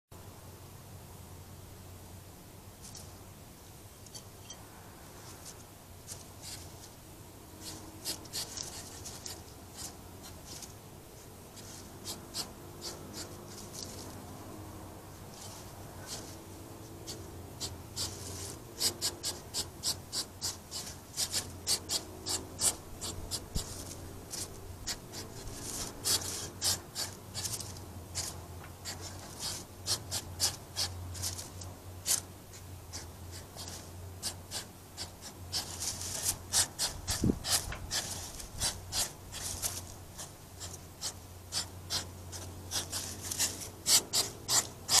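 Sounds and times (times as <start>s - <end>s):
low steady hum: 0.1s - 45.0s
hedgehogs snorting: 7.6s - 45.0s.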